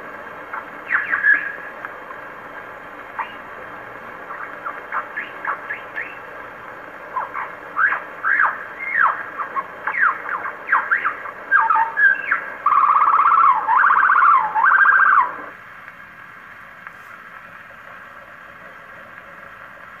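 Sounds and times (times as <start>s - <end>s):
bird song on gramophone: 0.0s - 15.6s
record surface hiss: 0.0s - 20.0s.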